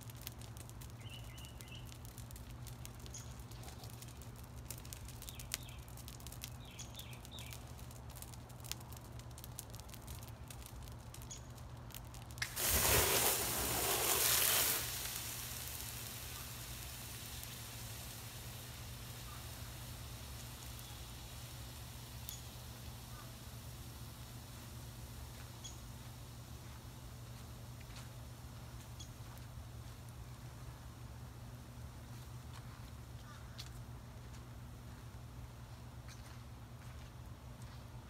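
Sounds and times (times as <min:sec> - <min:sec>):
water hissing on flames: 0:00.0 - 0:27.8
burning rubber crackling: 0:00.0 - 0:31.2
steam hissing: 0:12.4 - 0:22.3.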